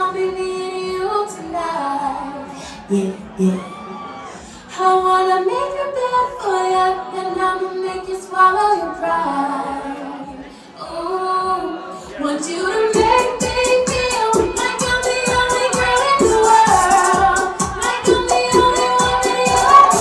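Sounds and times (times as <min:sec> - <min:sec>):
dance beat with drum pulse: 0:13.0 - 0:20.0.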